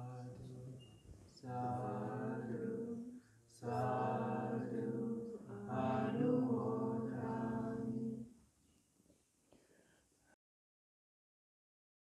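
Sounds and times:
monotone chanting voices: 0.0 - 8.4.

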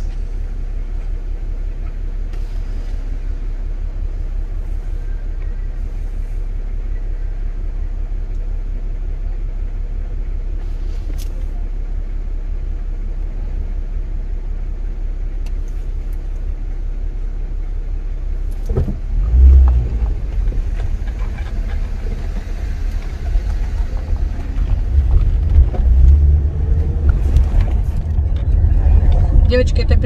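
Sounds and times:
car engine and road rumble: 0.0 - 30.0.

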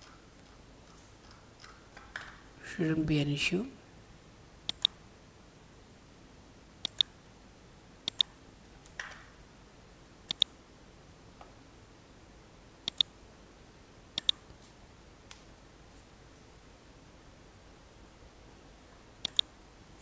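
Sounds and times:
computer mouse buttons clicking: 4.7 - 5.0, 6.8 - 7.1, 8.1 - 8.3, 10.3 - 10.5, 12.9 - 13.1, 14.2 - 14.4, 19.2 - 19.5.

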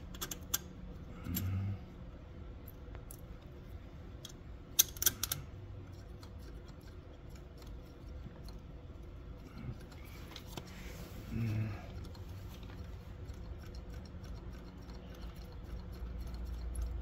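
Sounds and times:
small hard parts clicking: 0.0 - 1.6, 4.2 - 8.7
low steady hum: 0.0 - 17.0.

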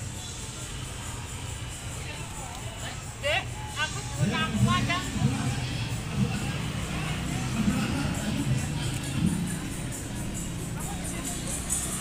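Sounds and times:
faint murmur of people: 0.0 - 12.0
music with beat and bass: 4.2 - 12.0.

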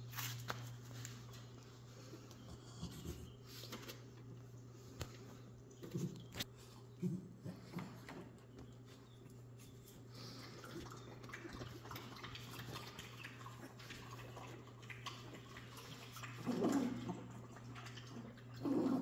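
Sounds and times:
puppies scratching on towels: 0.0 - 5.3.

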